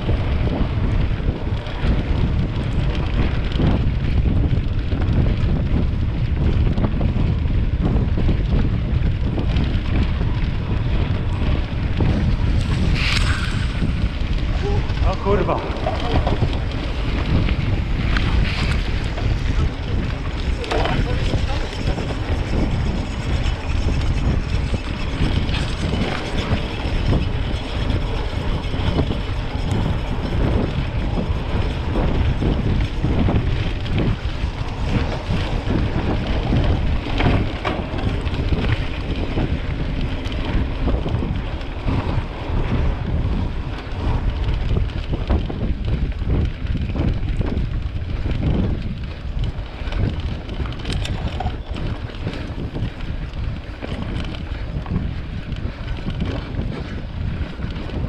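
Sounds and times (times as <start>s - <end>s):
bike rumble: 0.0s - 58.0s
knocks and rattles from trail: 0.0s - 58.0s
wind noise on microphone: 0.0s - 58.0s.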